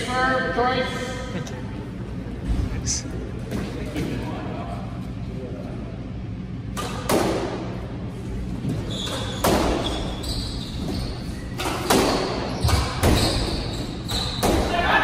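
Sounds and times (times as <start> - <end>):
shoes squeaking on wooden floor: 8.6 - 14.5.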